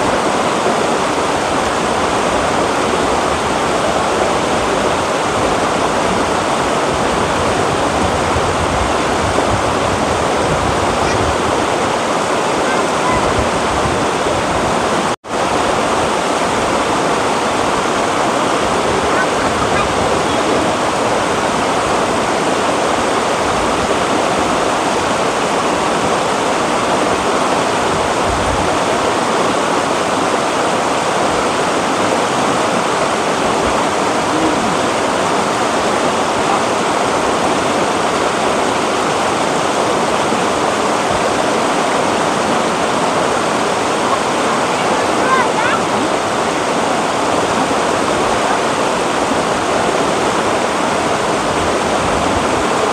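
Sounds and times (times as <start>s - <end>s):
river rapids rushing over rocks: 0.0s - 52.9s.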